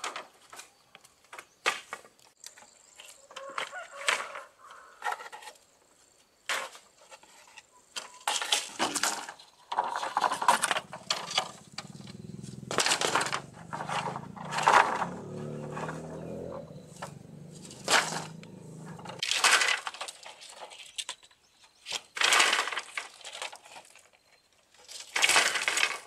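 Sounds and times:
crunching and scraping knocks: 6.5s - 20.8s.

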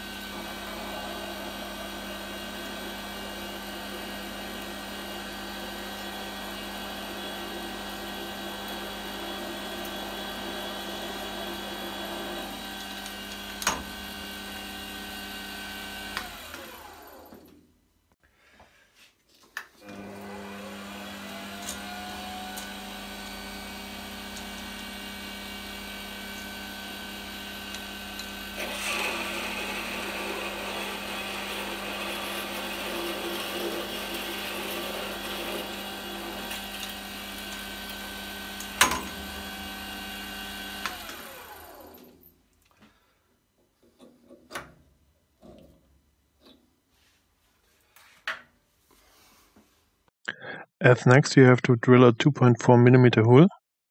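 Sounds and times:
drill cutting metal: 0.0s - 17.4s, 19.9s - 42.2s
metal lathe humming: 0.0s - 17.4s, 19.9s - 42.1s.

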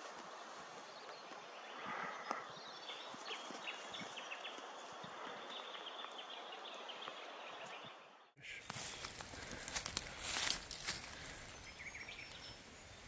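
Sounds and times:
rustling: 8.6s - 11.7s.

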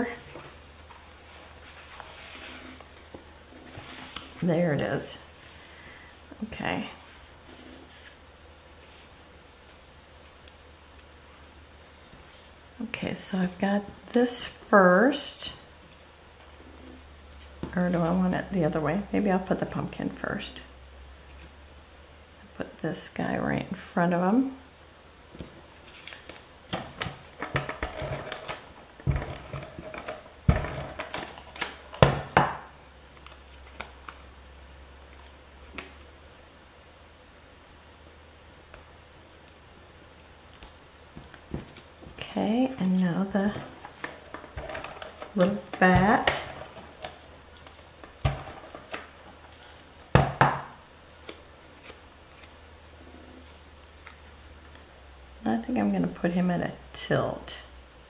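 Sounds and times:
paper rustling: 25.8s - 31.9s.

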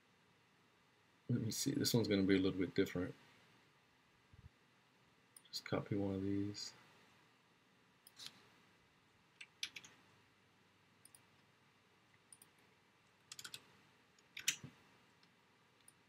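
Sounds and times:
computer mouse clicks: 9.4s - 10.0s, 11.0s - 11.4s, 12.2s - 12.6s, 13.2s - 16.0s
keyboard keys clicking: 13.3s - 13.7s.

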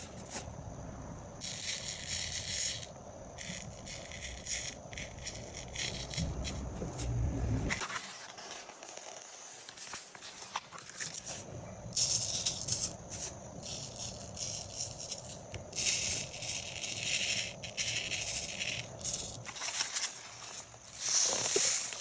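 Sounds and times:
sand hissing and pattering: 7.8s - 22.0s.

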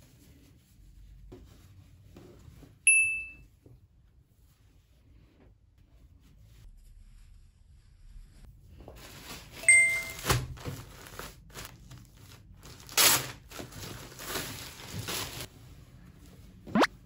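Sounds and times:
short ding: 2.9s - 3.4s, 9.7s - 10.3s
plastic bag crinkling: 9.4s - 15.5s.

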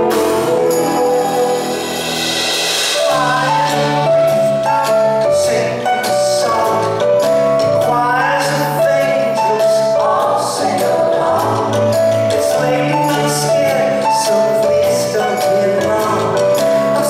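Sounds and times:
person singing long notes: 0.0s - 2.2s
live rock band playing: 0.0s - 17.0s.

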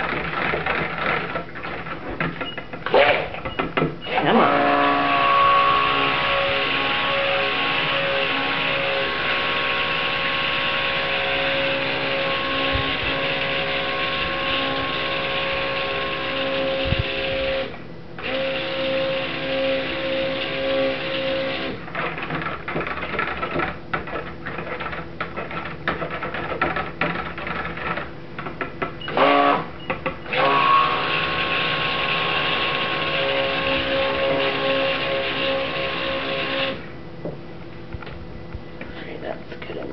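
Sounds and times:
knocks and clatter: 0.0s - 4.0s, 21.9s - 29.0s
stick blender whining: 0.0s - 36.9s.

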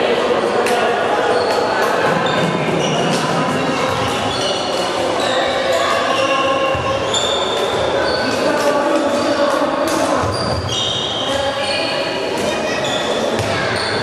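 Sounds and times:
shoes squeaking on court floor: 3.8s - 14.0s.

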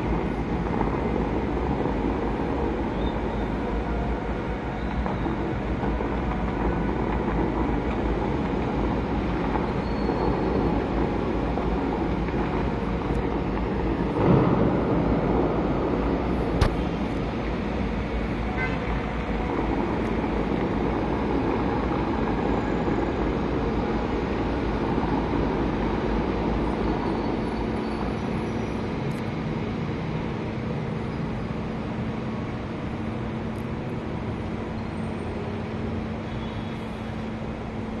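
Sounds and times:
city traffic roar: 0.0s - 38.0s.

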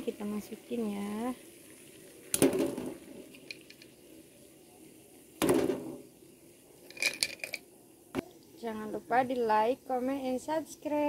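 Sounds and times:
shells splashing into boiling water: 1.0s - 4.1s, 5.3s - 6.1s, 6.8s - 7.7s
shells knocking in metal pot: 2.4s - 3.9s, 6.9s - 7.6s.

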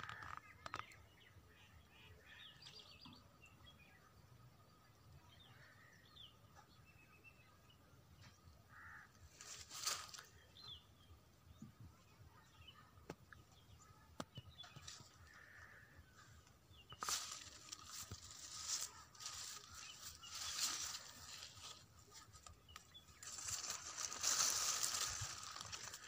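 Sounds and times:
distant bird calls: 0.0s - 26.0s
leaves rustling against phone: 8.7s - 10.6s, 14.6s - 26.0s.

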